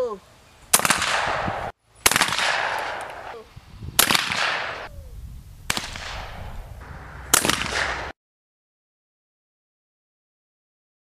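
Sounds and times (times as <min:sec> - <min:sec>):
shotgun shots echoing: 0:00.7 - 0:03.4, 0:04.0 - 0:04.9, 0:05.7 - 0:08.2.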